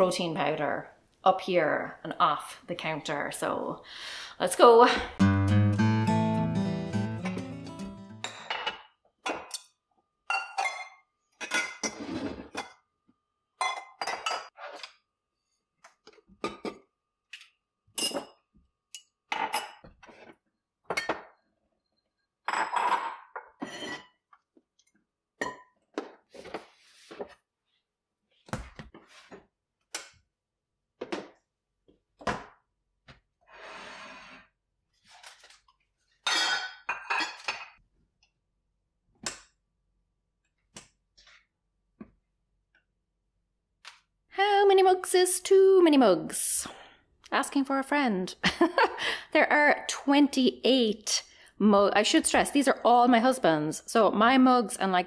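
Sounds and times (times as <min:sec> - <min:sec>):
ceramic mugs and bowls clinking: 0:08.2 - 0:09.5, 0:10.3 - 0:12.8, 0:13.6 - 0:14.5, 0:18.0 - 0:18.4, 0:36.2 - 0:37.8.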